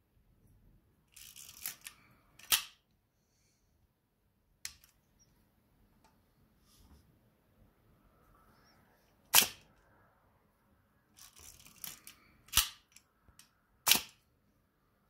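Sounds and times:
camera handling clicks and rattles: 1.1s - 2.8s, 11.2s - 13.0s, 13.9s - 14.2s
camera shutter clicks: 13.9s - 14.2s.

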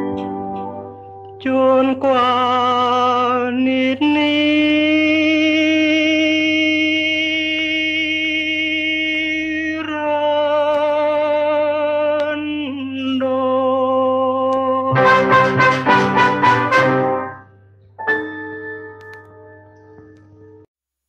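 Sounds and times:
low musical backing: 0.0s - 2.7s, 14.9s - 20.7s
brass section short loud chords: 14.9s - 17.5s
singer holding vibrato note: 14.9s - 17.5s.

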